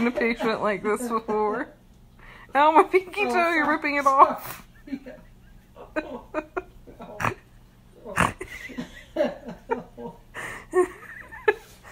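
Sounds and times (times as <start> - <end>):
woman laughing: 0.0 - 1.6, 4.4 - 11.9
breathy bursts: 2.2 - 2.6, 10.3 - 10.8.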